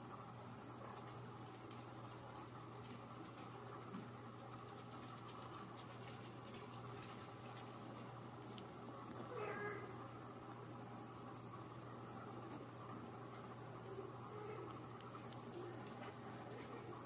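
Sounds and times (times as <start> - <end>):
light ticks and scratches: 0.8 - 9.3, 14.6 - 17.0.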